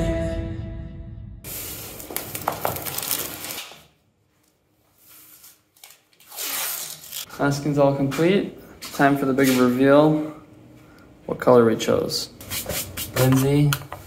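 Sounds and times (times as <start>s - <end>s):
background music: 0.0s - 1.5s
tape rubbing: 1.5s - 3.8s, 5.2s - 7.3s
masking tape tearing off roll: 1.5s - 3.9s, 5.8s - 7.3s.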